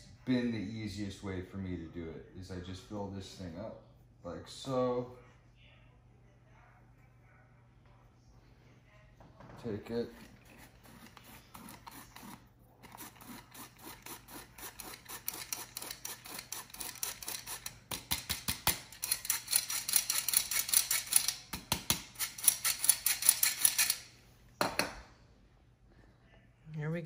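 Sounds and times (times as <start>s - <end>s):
flour sifter clicking and scraping: 9.9s - 21.2s.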